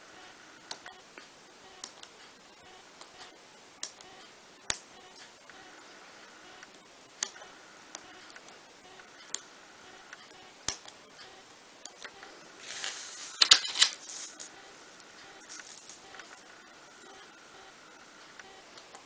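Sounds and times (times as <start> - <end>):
paper rustling: 12.6 - 14.5.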